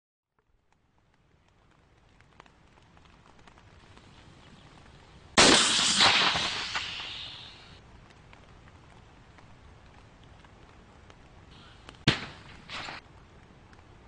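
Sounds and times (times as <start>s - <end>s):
missile launch blast: 5.4s - 7.6s
rocket motor hiss: 5.4s - 7.8s.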